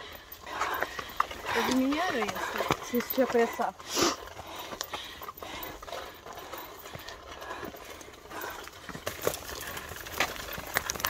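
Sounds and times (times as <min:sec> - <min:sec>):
footsteps on dirt trail: 0:00.0 - 0:11.0.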